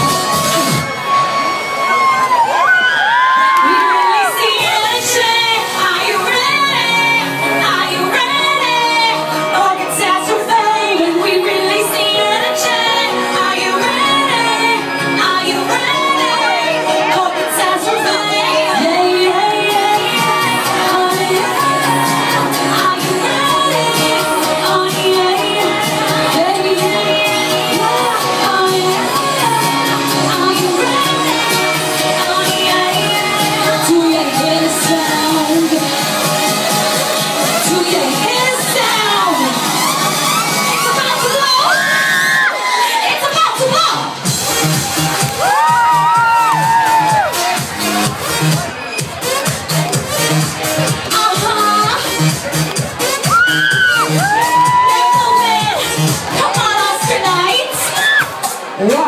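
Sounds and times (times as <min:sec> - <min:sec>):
loud pop backing music: 0:00.0 - 0:59.0
woman singing into microphone: 0:03.6 - 0:40.0, 0:54.6 - 0:58.1.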